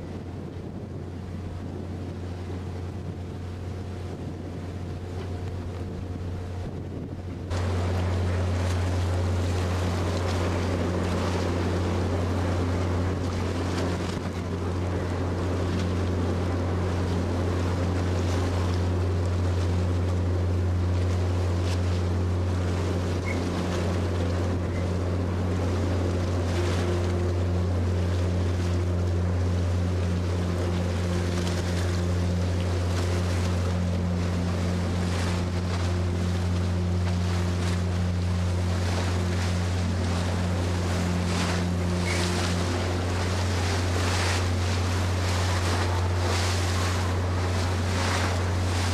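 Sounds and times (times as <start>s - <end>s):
wind across microphone: 0.0s - 19.0s
ferry engines droning: 0.0s - 48.9s
water rushing along hull: 0.0s - 48.9s.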